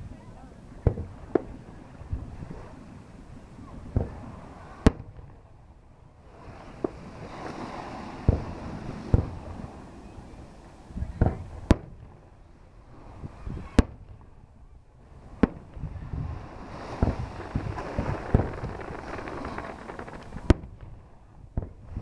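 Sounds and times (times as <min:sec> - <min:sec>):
fireworks exploding: 0:16.5 - 0:21.0.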